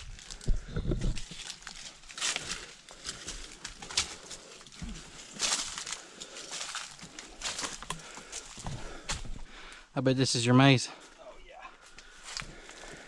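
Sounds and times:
footsteps crunching on dry leaves: 1.1 - 9.4
person breathing hard: 2.2 - 10.0, 11.7 - 13.0.

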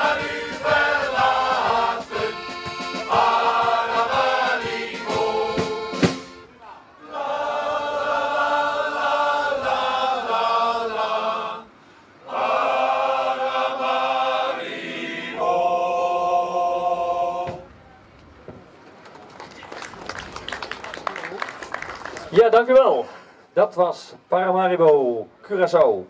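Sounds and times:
accordion: 0.0 - 9.4
men's choir singing: 0.0 - 17.7.

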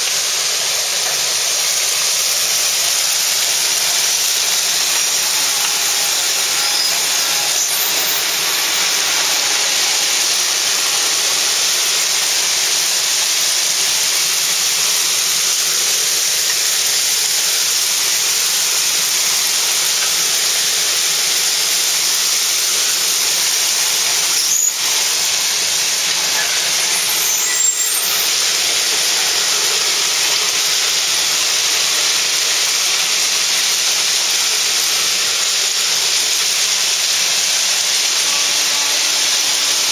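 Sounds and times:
ballast plow grinding stone: 0.5 - 14.1, 18.2 - 33.0
sharp squeals: 2.2 - 12.3, 22.7 - 31.5.

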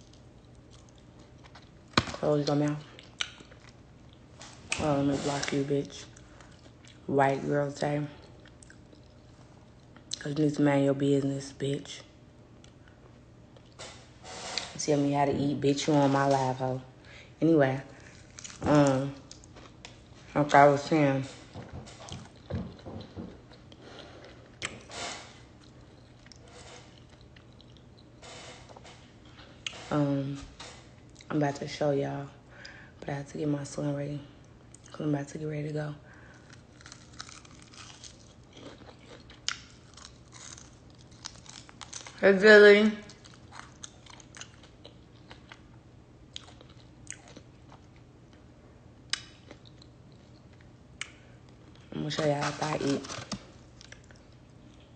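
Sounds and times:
person chewing: 0.0 - 2.1, 2.9 - 4.8, 8.2 - 10.2, 18.0 - 18.6, 25.5 - 29.8, 36.3 - 42.2, 43.1 - 45.7, 46.3 - 48.0.

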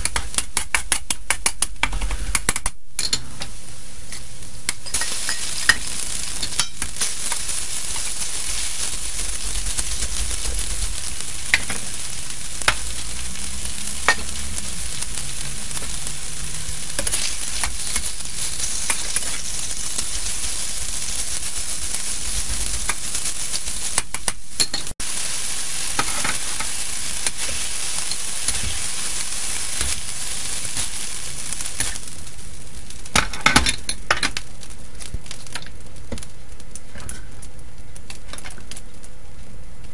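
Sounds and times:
food sizzling in hot oil: 0.0 - 39.2
spatula scraping a wok: 4.9 - 24.0, 25.8 - 32.2.

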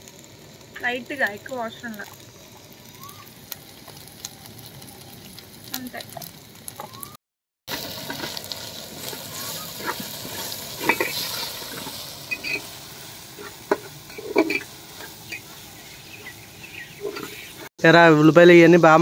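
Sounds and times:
onions sizzling in oil: 0.0 - 19.0
metal spoon scraping pot: 9.8 - 12.8, 13.4 - 15.6, 16.9 - 17.6.

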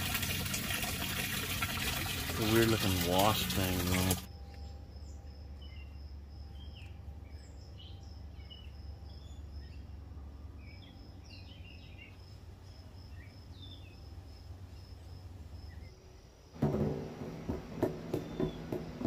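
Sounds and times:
birds chirping: 2.2 - 14.8, 18.0 - 19.0
insect chirping: 4.3 - 16.6.

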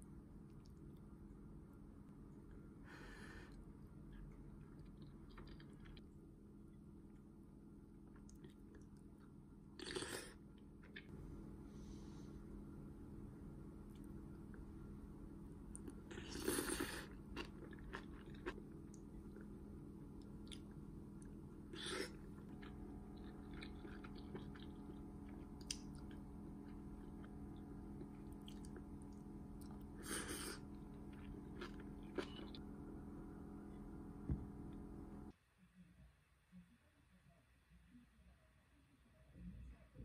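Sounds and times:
low hum: 0.0 - 38.2
chewing and biting food: 4.2 - 6.1, 15.8 - 19.5, 20.2 - 32.6.

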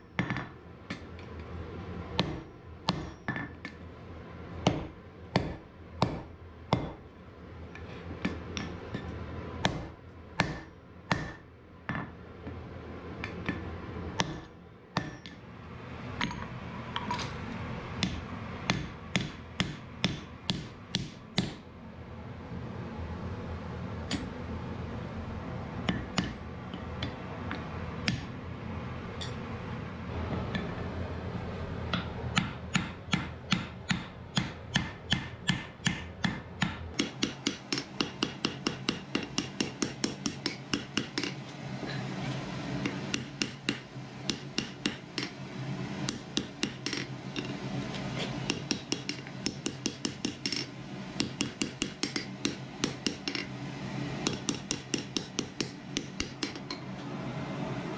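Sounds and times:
hammer striking hot iron on anvil: 0.0 - 1.1, 2.2 - 3.8, 4.6 - 7.0, 8.2 - 12.2, 14.2 - 15.4, 16.2 - 16.6, 18.0 - 21.6, 24.1 - 24.4, 25.8 - 28.4, 31.9 - 42.1, 42.8 - 45.4, 46.0 - 47.6, 48.2 - 53.5, 54.2 - 56.9
steady low hum: 0.0 - 57.9.

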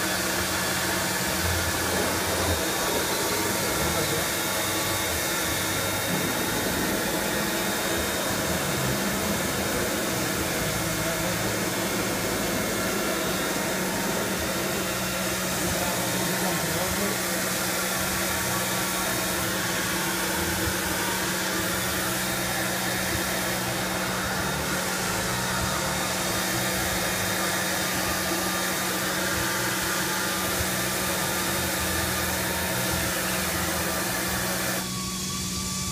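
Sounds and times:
cnc router whirring: 0.0 - 35.9
low hum: 1.2 - 16.2.

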